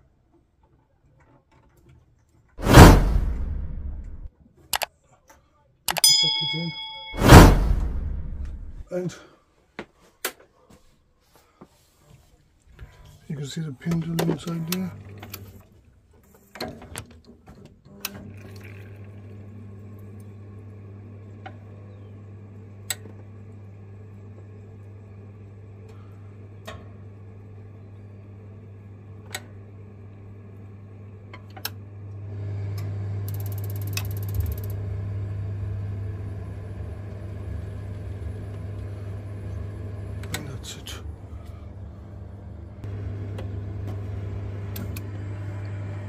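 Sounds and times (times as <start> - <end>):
valve motor humming: 32.2 - 46.0.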